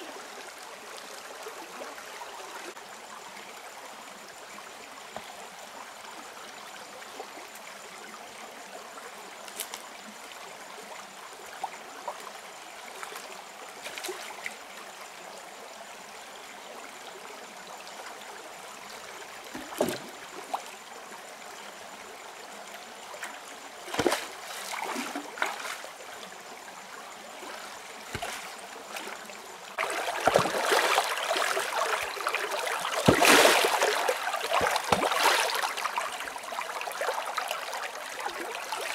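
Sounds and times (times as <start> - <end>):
rocky stream flowing: 17.4 - 38.9
stones splashing and knocking: 23.9 - 24.3, 28.1 - 28.5, 29.8 - 32.1, 32.8 - 35.6.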